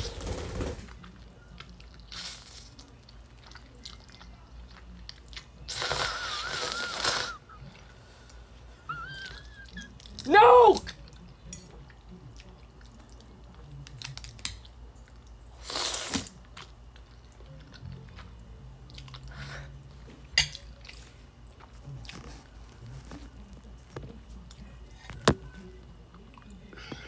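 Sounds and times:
quiet chewing: 0.9s - 27.0s
noodle slurp: 5.7s - 7.4s, 15.6s - 16.4s.

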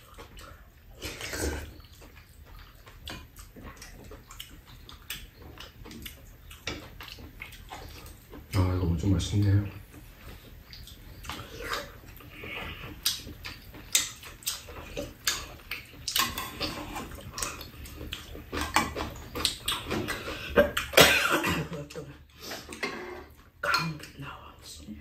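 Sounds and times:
chewing and smacking: 0.0s - 21.1s
person coughing: 20.4s - 22.0s.

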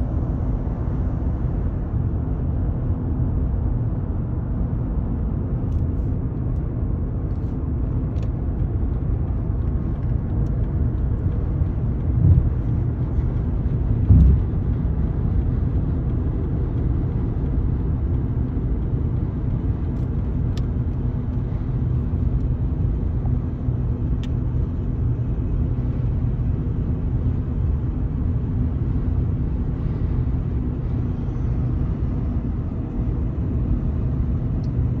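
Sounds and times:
car road and engine rumble: 0.0s - 35.0s.

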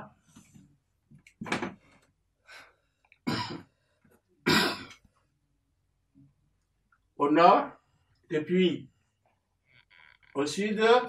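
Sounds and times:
man coughing: 3.3s - 3.7s, 4.4s - 5.0s.

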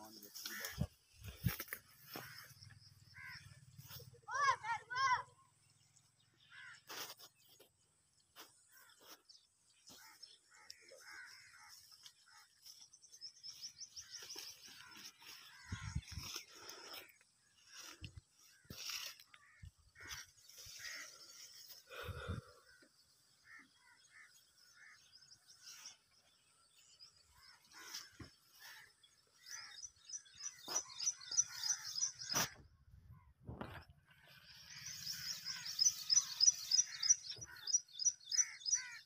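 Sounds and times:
rustling in dry undergrowth: 0.0s - 4.4s, 6.4s - 22.0s, 23.4s - 32.6s, 33.6s - 37.7s
small birds chirping: 0.0s - 39.0s
leafy bushes rustling: 13.5s - 21.9s
small bird chirping: 34.5s - 39.0s.

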